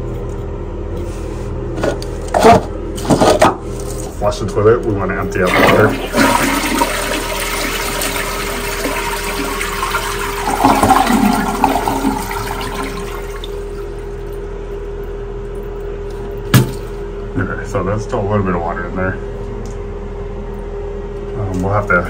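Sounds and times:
toilet flushing: 0:05.3 - 0:14.5.

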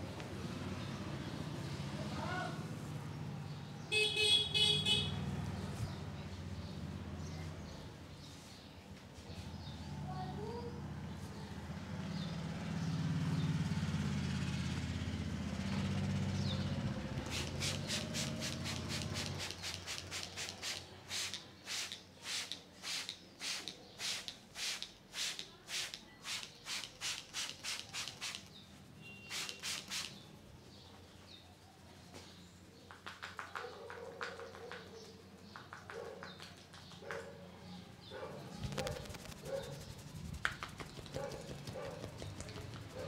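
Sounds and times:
hands rubbing hair: 0:17.2 - 0:28.5, 0:29.3 - 0:30.2, 0:38.6 - 0:43.0.

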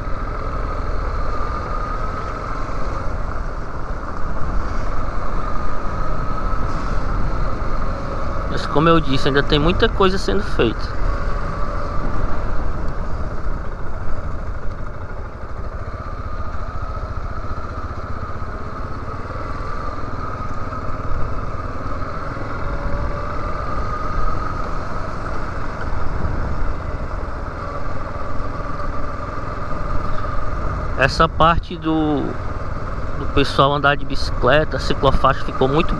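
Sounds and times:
motorcycle engine running: 0:00.0 - 0:35.9
wind rumble on microphone: 0:20.0 - 0:31.7.

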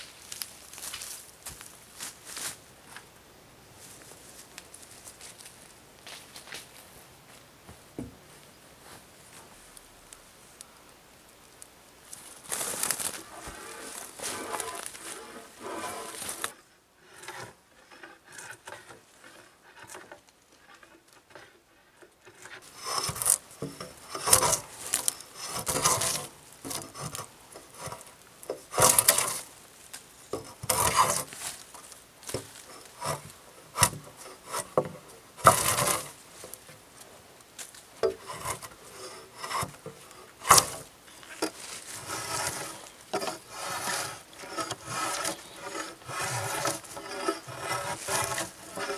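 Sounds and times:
drawknife scraping wood: 0:12.5 - 0:21.5, 0:22.2 - 0:29.5, 0:30.3 - 0:31.6, 0:32.3 - 0:36.6, 0:38.0 - 0:48.9.

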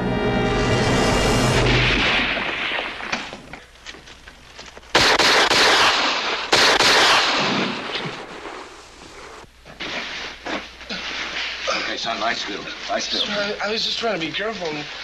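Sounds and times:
loud blasts: 0:00.0 - 0:03.5, 0:04.9 - 0:09.4
gunshots: 0:00.9 - 0:03.5, 0:04.9 - 0:08.8.

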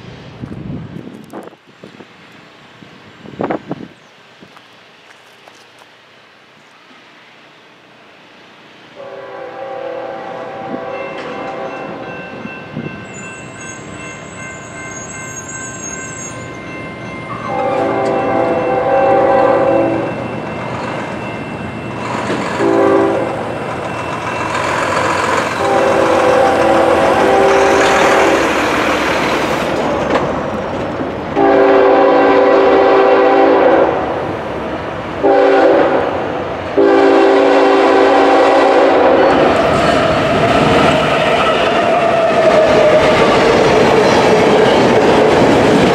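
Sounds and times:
train rumble: 0:00.0 - 0:45.9
locomotive air horn blasts: 0:09.0 - 0:12.0, 0:17.5 - 0:20.2, 0:22.6 - 0:23.5, 0:25.6 - 0:28.5, 0:31.4 - 0:34.2, 0:35.2 - 0:36.2, 0:36.8 - 0:39.5
crossing signal bell ringing: 0:10.9 - 0:28.4.

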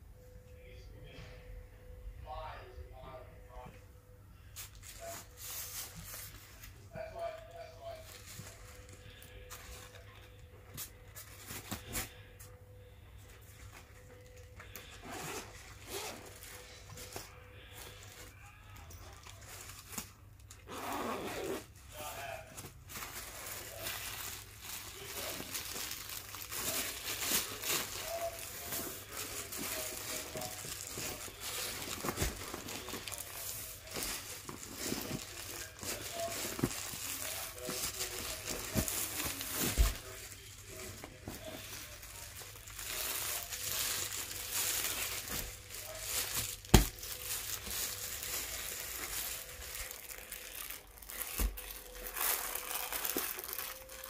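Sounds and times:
plastic packaging crinkling: 0:19.0 - 0:20.6, 0:22.0 - 0:54.0.

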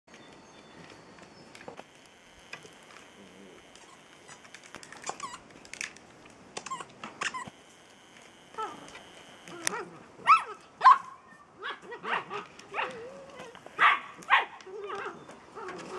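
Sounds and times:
puppies yipping and whining: 0:03.8 - 0:05.4, 0:06.6 - 0:07.6, 0:08.6 - 0:15.9.

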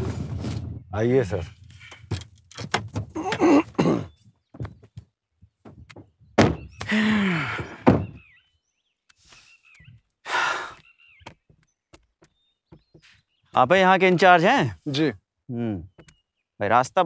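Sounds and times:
bird chirps: 0:03.9 - 0:07.0, 0:08.0 - 0:17.0.

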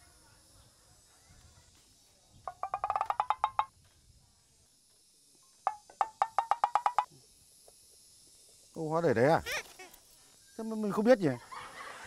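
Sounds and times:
wood block knocking run: 0:02.5 - 0:03.7, 0:05.7 - 0:07.1.

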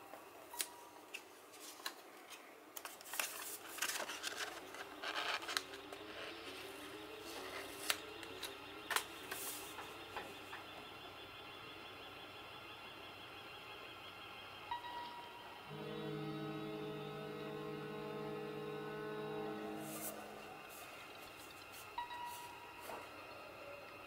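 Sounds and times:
plastic wrapping crinkling: 0:01.5 - 0:09.6.

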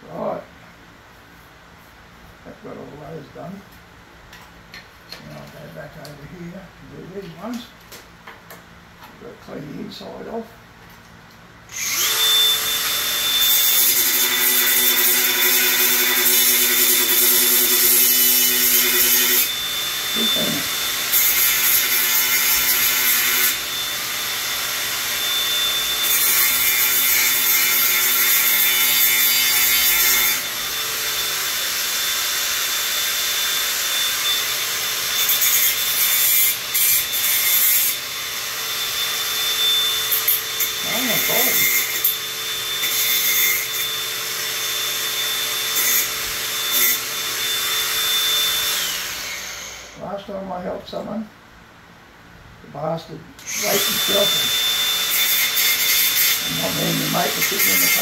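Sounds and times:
power tool motor whining: 0:11.7 - 0:50.0, 0:53.4 - 0:58.0.

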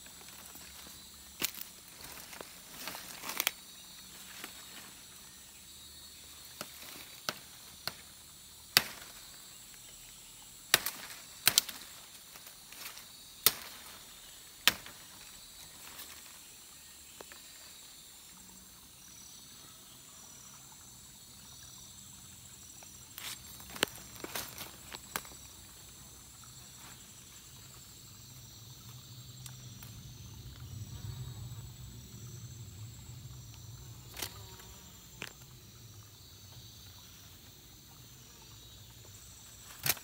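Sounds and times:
insects buzzing: 0:00.0 - 0:40.0
machete chopping wood: 0:08.7 - 0:09.1, 0:10.7 - 0:11.8, 0:13.4 - 0:13.8, 0:14.6 - 0:15.0.

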